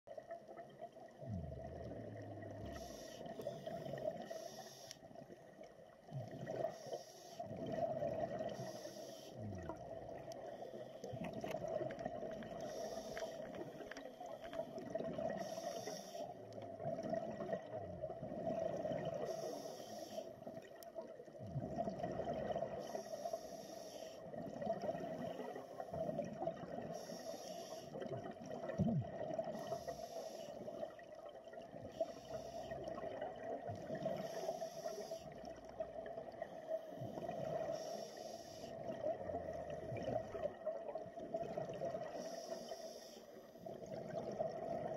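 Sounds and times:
exhalation bubbles gurgling: 0:00.6 - 0:04.4, 0:06.0 - 0:06.8, 0:07.4 - 0:08.6, 0:09.4 - 0:13.9, 0:14.7 - 0:15.7, 0:16.3 - 0:19.4, 0:20.5 - 0:23.0, 0:24.2 - 0:27.1, 0:28.0 - 0:30.0, 0:30.6 - 0:37.8, 0:38.8 - 0:42.2, 0:43.6 - 0:44.9
regulator inhalation hiss: 0:02.7 - 0:05.0, 0:06.7 - 0:07.4, 0:08.6 - 0:09.4, 0:12.7 - 0:13.5, 0:15.4 - 0:16.3, 0:19.2 - 0:20.3, 0:22.8 - 0:24.2, 0:26.9 - 0:28.0, 0:29.5 - 0:30.7, 0:31.9 - 0:32.8, 0:34.1 - 0:35.4, 0:37.6 - 0:38.8, 0:42.2 - 0:43.6.

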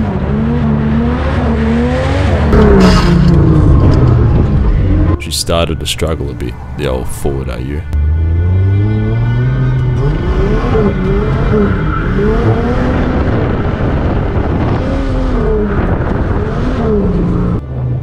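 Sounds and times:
car engine revving: 0:00.0 - 0:07.0, 0:07.8 - 0:18.0.

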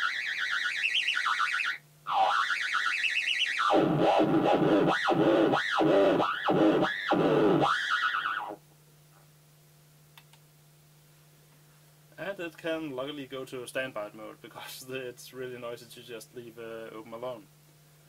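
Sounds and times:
theremin tone gliding: 0:00.0 - 0:08.6.

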